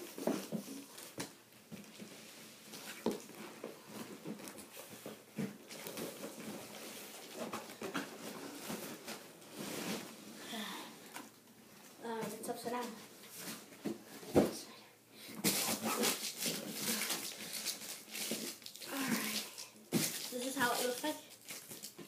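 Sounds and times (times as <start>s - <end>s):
cardboard rustling and scraping: 1.8s - 10.3s.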